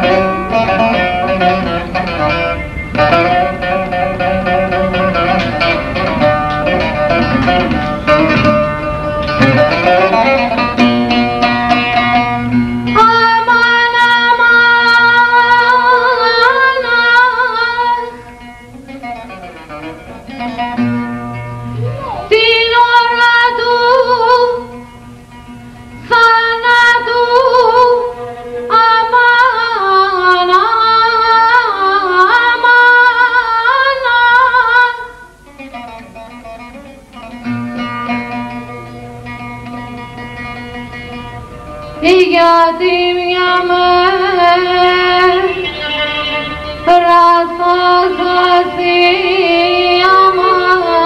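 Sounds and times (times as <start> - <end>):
lute playing softly: 0.0 - 51.0
woman singing: 13.0 - 18.2, 21.8 - 24.8, 26.0 - 35.4, 42.0 - 51.0.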